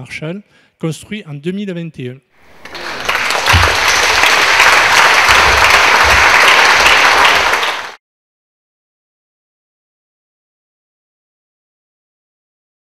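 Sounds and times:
audience applauding: 2.4 - 8.0.

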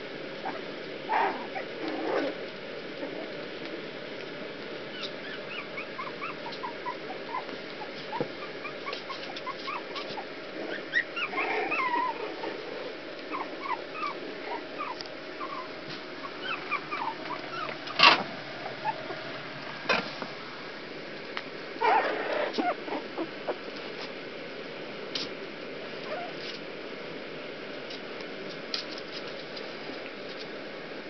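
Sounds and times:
puppies whimpering and squeaking: 4.9 - 12.7, 13.3 - 19.2, 21.8 - 23.6, 26.1 - 26.4.

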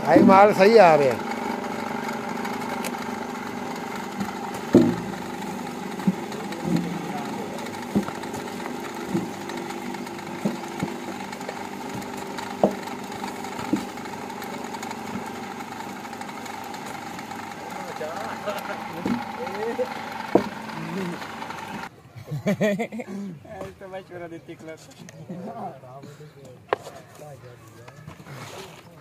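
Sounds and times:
extruder motor humming: 0.0 - 21.9.

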